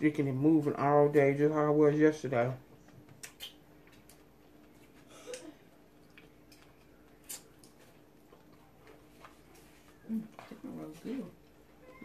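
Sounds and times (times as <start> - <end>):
faint steady hum: 0.0 - 12.0
chewing: 3.2 - 10.6.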